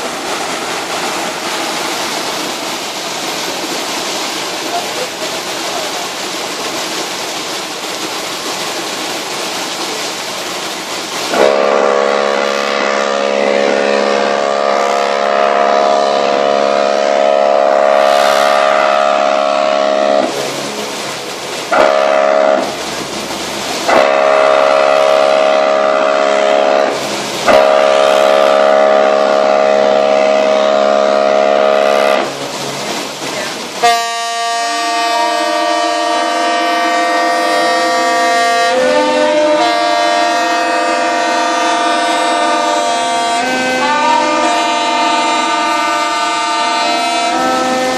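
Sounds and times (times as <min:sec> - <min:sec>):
steady rushing noise: 0:00.0 - 0:11.6, 0:22.6 - 0:24.2
higher-pitched horn: 0:11.3 - 0:20.4, 0:21.7 - 0:22.8, 0:23.9 - 0:32.3, 0:33.8 - 0:47.9
deep ship horns blasting: 0:11.3 - 0:21.0, 0:21.7 - 0:22.8, 0:23.8 - 0:32.6, 0:33.8 - 0:47.9.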